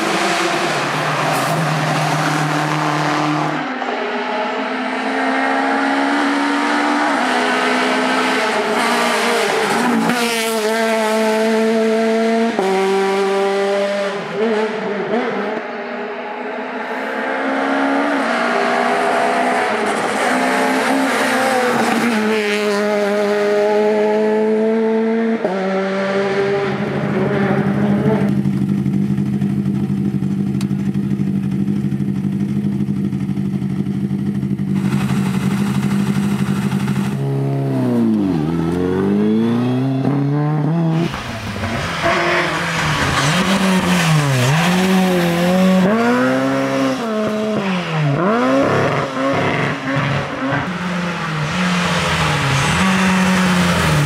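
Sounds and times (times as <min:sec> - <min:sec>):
rally car accelerating through gears: 0:00.0 - 0:29.6, 0:34.6 - 0:54.0
engine rising and falling: 0:34.6 - 0:54.0.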